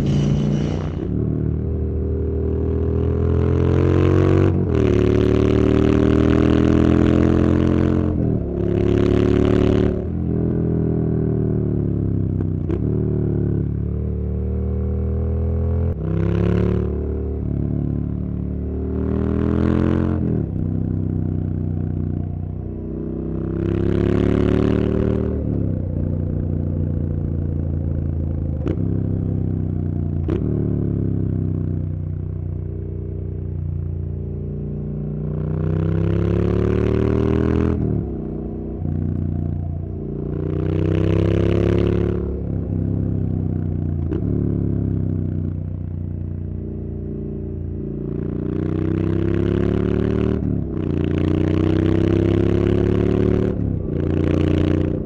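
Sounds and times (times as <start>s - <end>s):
rushing noise: 0.0s - 1.8s
motorcycle engine revving: 0.0s - 55.0s.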